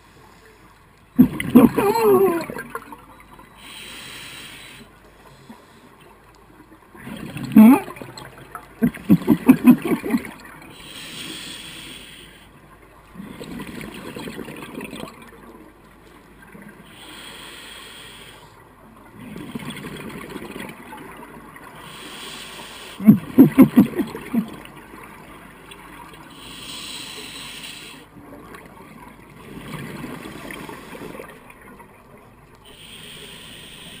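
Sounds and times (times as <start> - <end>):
exhaled bubbles burbling: 1.2 - 3.0, 7.0 - 10.7, 13.2 - 15.4, 23.0 - 24.8
regulator inhale hiss: 3.6 - 6.0, 10.7 - 12.6, 16.9 - 18.6, 21.8 - 23.0, 26.3 - 28.1, 32.7 - 34.0.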